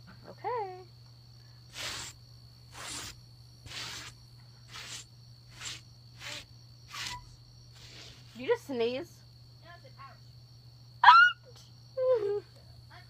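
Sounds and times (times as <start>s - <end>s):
brush rasping on saddle pad: 1.7s - 8.4s.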